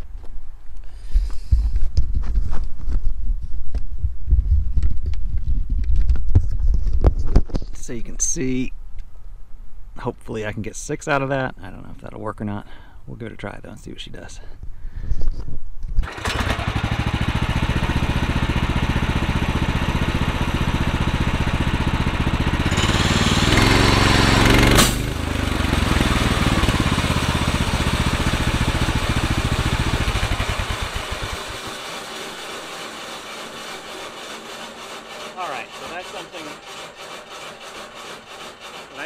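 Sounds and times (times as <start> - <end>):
sawmill gasoline engine running: 16.0 - 39.0
harsh sawing noise: 16.2 - 30.2, 31.1 - 39.0.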